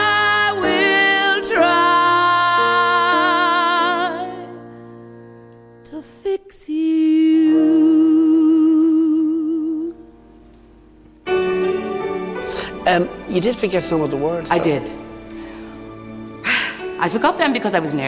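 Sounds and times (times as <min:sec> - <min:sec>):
breath: 0:12.4 - 0:12.8, 0:15.3 - 0:15.8, 0:16.4 - 0:17.0.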